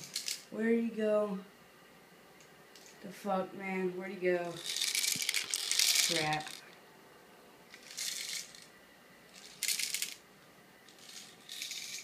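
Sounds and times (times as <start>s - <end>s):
small objects rattling: 0.0s - 0.5s, 4.5s - 6.7s, 7.7s - 8.7s, 9.3s - 10.2s, 10.9s - 12.0s.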